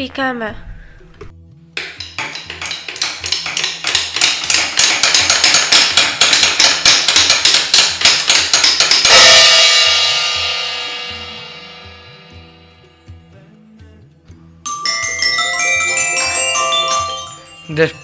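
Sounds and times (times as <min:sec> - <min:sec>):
rapid hammering strikes: 0:01.8 - 0:12.6
ringing crash: 0:08.2 - 0:13.0.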